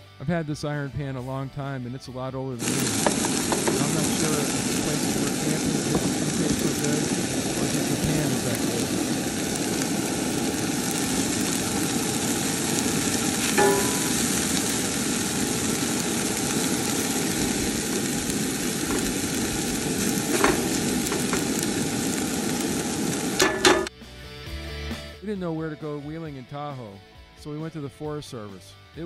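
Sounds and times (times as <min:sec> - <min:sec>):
rice sizzling in a skillet: 0:02.6 - 0:23.9.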